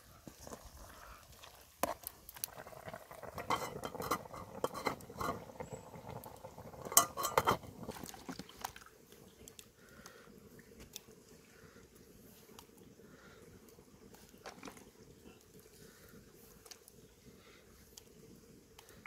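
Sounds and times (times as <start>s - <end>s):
metal spoon scraping wok: 3.2s - 5.9s, 6.8s - 7.8s
metal lid clanking: 3.4s - 5.5s, 6.8s - 7.8s.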